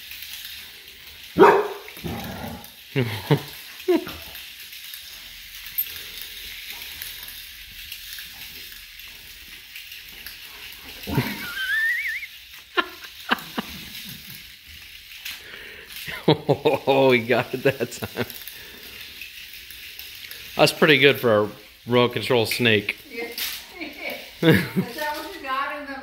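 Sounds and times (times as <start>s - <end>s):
faint hiss: 0.0s - 26.0s
puppy whining: 11.0s - 12.4s.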